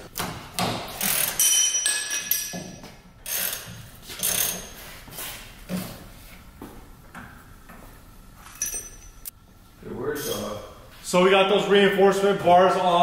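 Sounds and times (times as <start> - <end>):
metal tools clanking: 1.0 - 2.8, 8.4 - 9.3, 10.2 - 10.6
metallic ringing: 1.4 - 2.8, 8.4 - 9.3.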